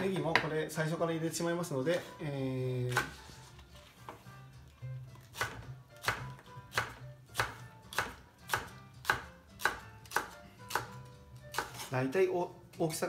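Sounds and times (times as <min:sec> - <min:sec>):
knife chopping on cutting board: 0:00.2 - 0:00.6, 0:02.9 - 0:03.3, 0:05.2 - 0:11.9.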